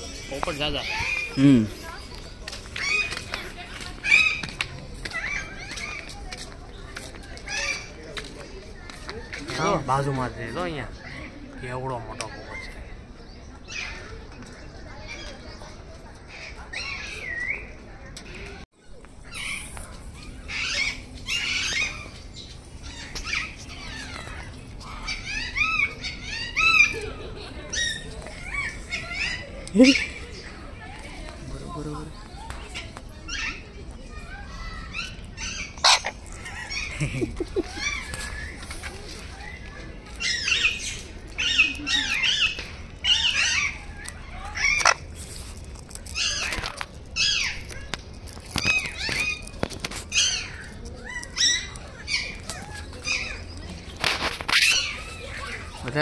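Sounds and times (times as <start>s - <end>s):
birds squawking: 0.0s - 6.2s, 19.2s - 30.5s, 32.7s - 45.1s, 46.0s - 56.0s.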